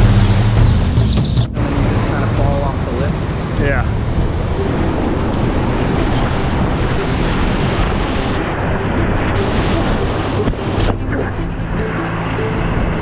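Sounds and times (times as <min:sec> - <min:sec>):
whitewater rushing through rapids: 0:01.6 - 0:13.0.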